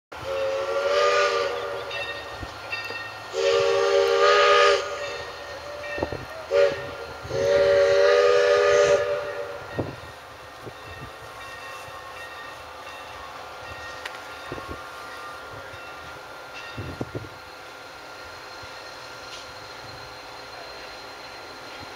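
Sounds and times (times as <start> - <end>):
train running with knocks: 0.1 - 21.9
steam locomotive whistle blasts: 0.2 - 2.5, 3.2 - 13.0.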